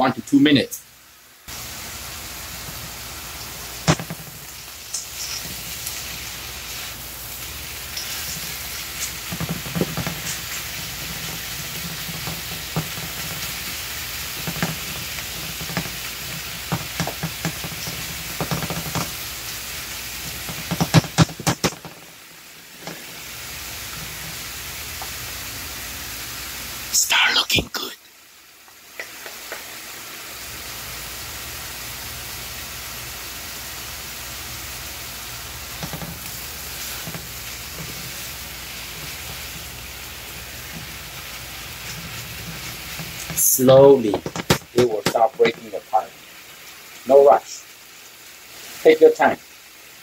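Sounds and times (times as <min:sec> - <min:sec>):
meat sizzling in a frying pan: 0:00.8 - 0:27.3, 0:28.0 - 0:50.0
wooden spatulas scraping a pan: 0:04.9 - 0:07.0, 0:07.8 - 0:13.7, 0:35.7 - 0:43.4.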